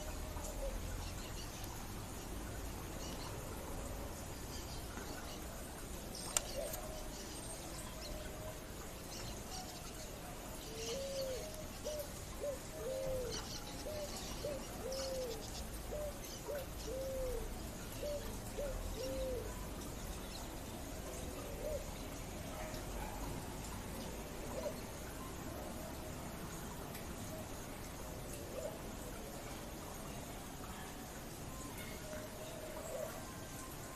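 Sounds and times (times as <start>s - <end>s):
pigeon cooing: 10.7s - 19.6s, 24.4s - 24.9s.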